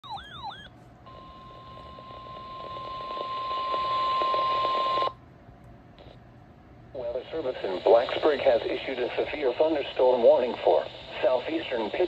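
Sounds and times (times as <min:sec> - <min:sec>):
warbling alarm: 0:00.0 - 0:05.1.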